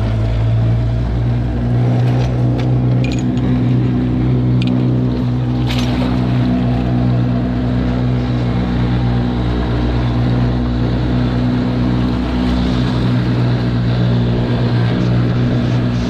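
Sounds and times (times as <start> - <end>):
outboard motor idling: 0.0 - 16.0.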